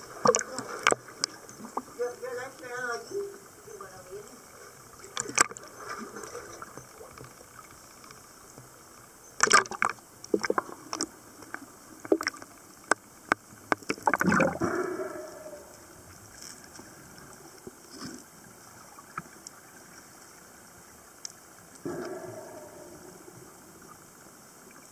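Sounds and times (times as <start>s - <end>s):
bubbling gurgle: 0.0s - 7.7s, 9.4s - 19.7s
water splashing: 0.0s - 8.2s, 9.4s - 20.1s
faint clicks: 4.9s - 14.2s, 21.2s - 23.2s
underwater hiss: 14.0s - 19.1s, 21.8s - 24.8s.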